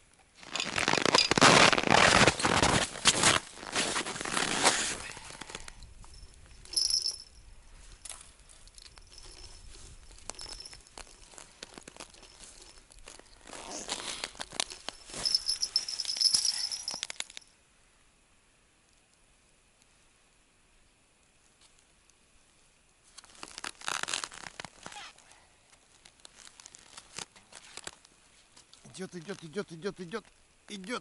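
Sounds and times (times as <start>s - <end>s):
crunching packed snow: 0.4s - 5.8s, 7.8s - 17.4s
rustling winter clothing: 0.4s - 7.2s, 7.8s - 17.4s, 23.0s - 28.7s
faint high squeak: 24.8s - 25.3s.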